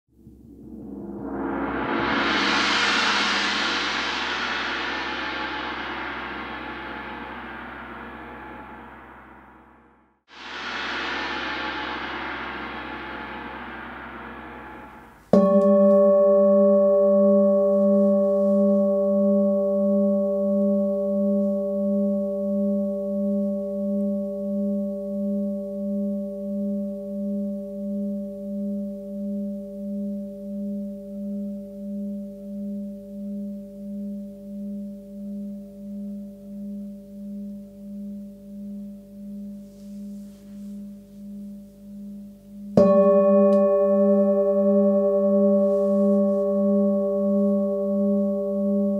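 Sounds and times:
singing bowl ringing: 10.8s - 48.9s.

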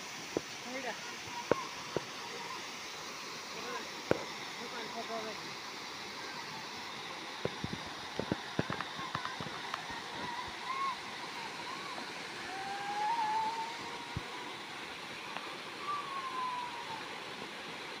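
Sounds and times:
waterfall rushing: 0.0s - 18.0s
faint wavering whistle tones: 10.4s - 14.7s, 15.3s - 17.3s.

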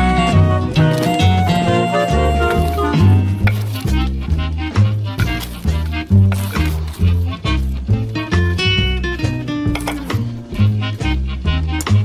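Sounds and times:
instrumental guitar and bass music: 0.0s - 12.0s.

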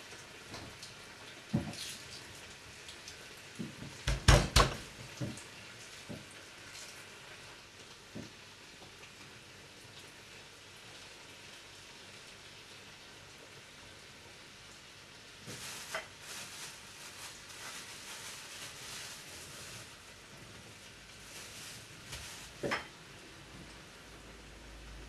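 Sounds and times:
faint steady hiss: 0.0s - 25.0s
cookware clattering: 22.6s - 22.9s.

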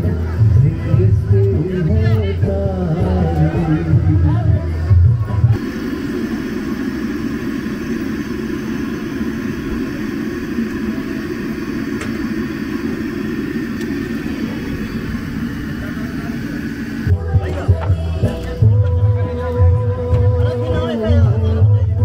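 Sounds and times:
gas burner roaring: 0.0s - 22.0s.

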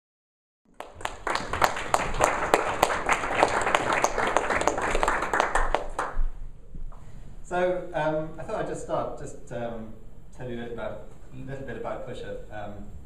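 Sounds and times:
audience applauding: 0.7s - 6.2s.

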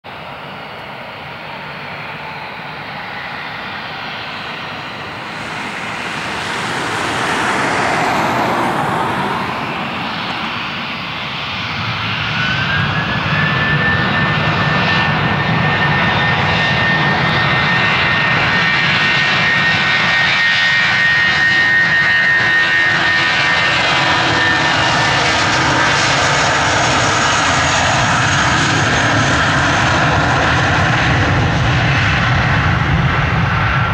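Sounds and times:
jet engines spooling up: 0.4s - 33.9s
high rising whine: 1.5s - 14.2s.

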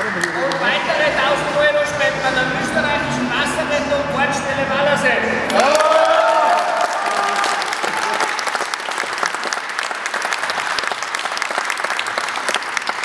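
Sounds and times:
people applauding: 0.0s - 0.9s, 5.5s - 13.0s.

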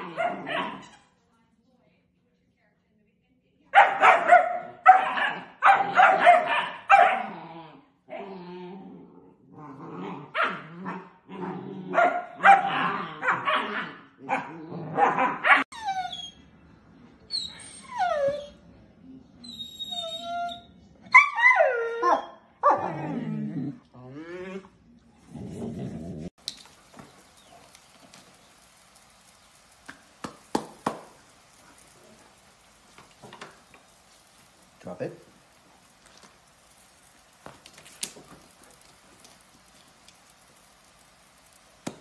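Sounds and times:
puppies barking: 3.8s - 7.3s, 11.9s - 15.8s
puppies whining and yipping: 15.6s - 16.4s, 17.3s - 18.6s, 19.4s - 22.5s.

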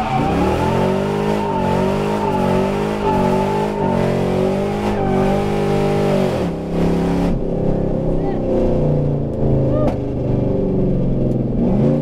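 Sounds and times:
tyre squeal: 0.0s - 6.0s
car engine revving: 0.0s - 12.0s.

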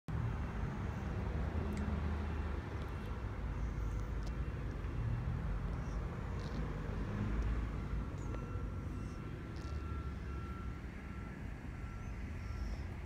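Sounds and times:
distant traffic rumble: 0.1s - 13.0s.

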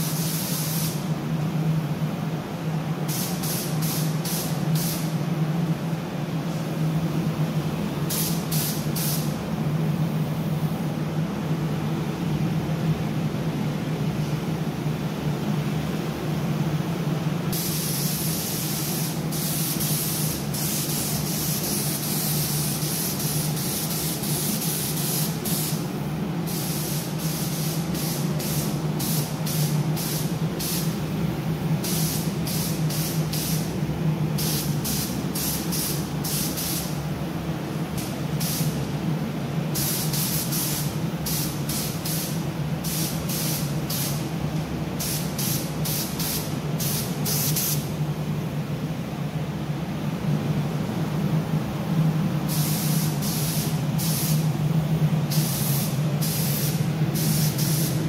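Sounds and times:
spray gun trigger bursts: 0.0s - 1.0s, 3.1s - 5.1s, 8.1s - 9.3s, 17.6s - 25.9s, 26.5s - 31.0s, 34.4s - 37.0s, 39.8s - 44.2s, 45.0s - 47.9s, 52.5s - 54.5s, 55.3s - 58.0s
spray gun hissing: 0.0s - 1.1s, 3.1s - 5.2s, 8.1s - 9.4s, 17.5s - 31.1s, 31.8s - 33.8s, 34.4s - 37.0s, 38.0s - 38.8s, 39.7s - 44.3s, 45.0s - 47.9s, 52.5s - 54.6s, 55.2s - 58.0s
steady low hum: 0.0s - 58.0s.

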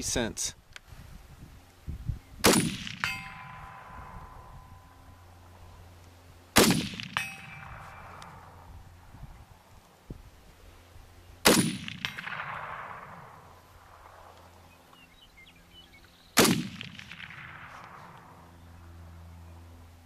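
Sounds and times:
rifle shots with echo: 2.4s - 5.0s, 6.5s - 8.7s, 11.4s - 14.3s, 16.4s - 18.5s.

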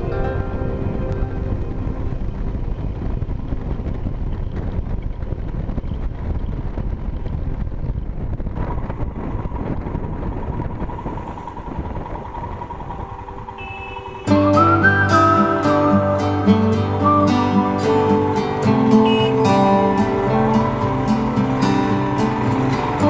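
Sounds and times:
motorcycle engine running: 0.0s - 23.0s
wind rush on microphone: 0.0s - 23.0s
steady high tone: 10.8s - 23.0s.

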